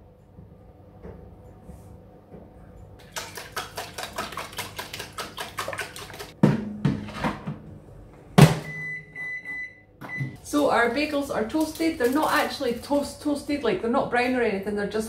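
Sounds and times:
eggs beaten in plastic dish: 3.0 - 6.4.

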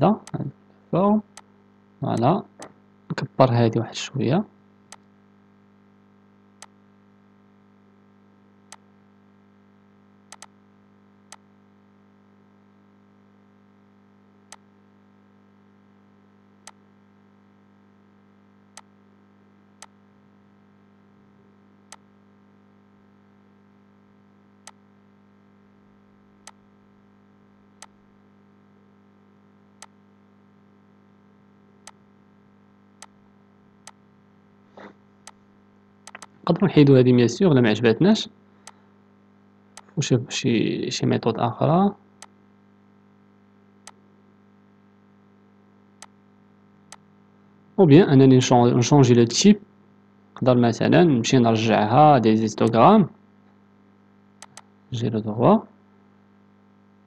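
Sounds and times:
low electrical hum: 0.0 - 57.0
computer mouse clicks: 10.3 - 10.6, 36.0 - 36.4, 54.4 - 54.7.

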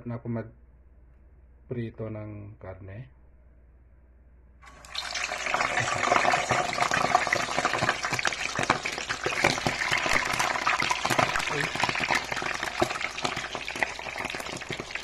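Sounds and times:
meat sizzling in hot oil: 4.6 - 15.0.

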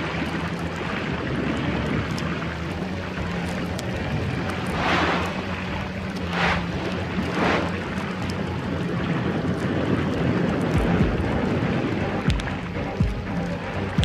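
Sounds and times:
underwater droning rumble: 0.0 - 14.0
whooshes: 4.5 - 8.0.

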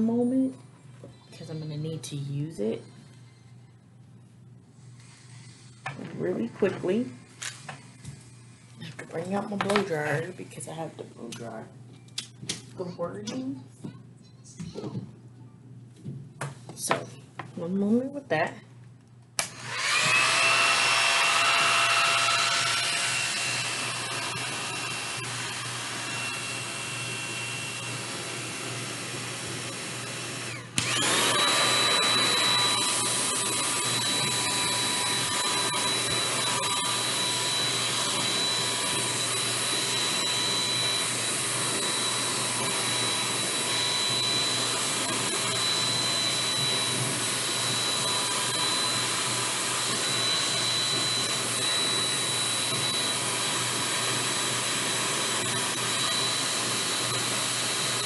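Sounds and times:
hair dryer blowing: 19.4 - 58.0.

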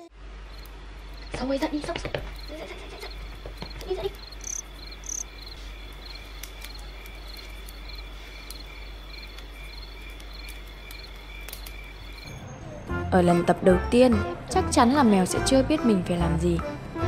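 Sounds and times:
crickets chirping: 0.4 - 12.4.

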